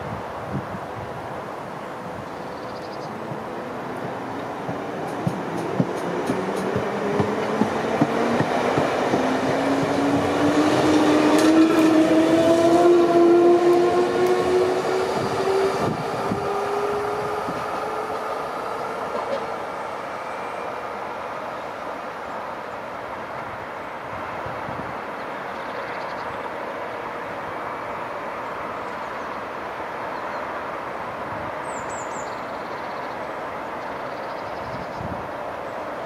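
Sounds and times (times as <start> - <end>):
train wheels clicking over rail joints: 3.2 - 15.1.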